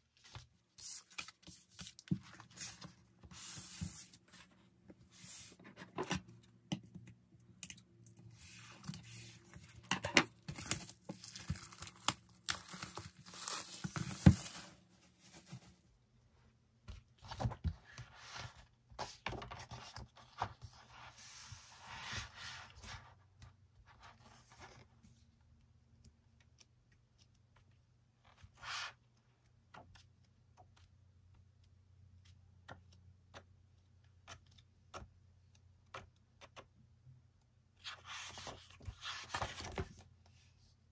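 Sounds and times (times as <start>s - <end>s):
paper and cardboard rustling: 8.3s - 15.8s.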